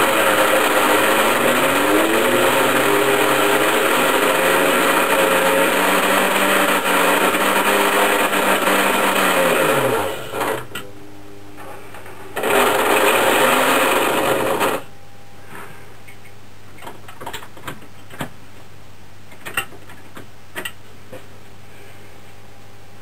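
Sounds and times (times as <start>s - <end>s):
steady low hum: 10.6s - 12.4s, 14.8s - 17.1s, 20.3s - 23.0s.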